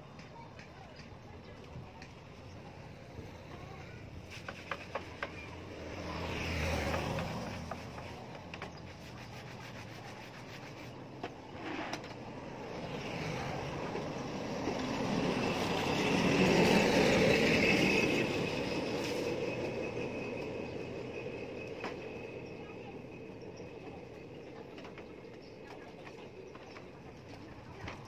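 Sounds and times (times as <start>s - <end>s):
hands scrubbing wet wheel: 6.2s - 12.0s.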